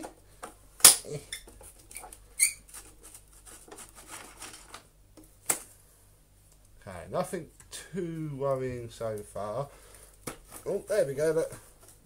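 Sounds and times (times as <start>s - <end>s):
clicks and scrapes of plastic parts: 1.4s - 4.9s.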